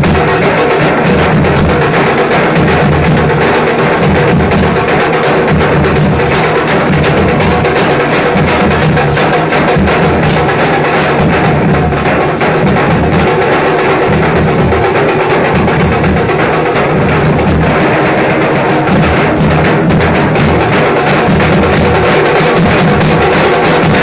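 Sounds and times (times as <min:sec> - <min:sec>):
dhol drums beating: 0:00.0 - 0:24.0.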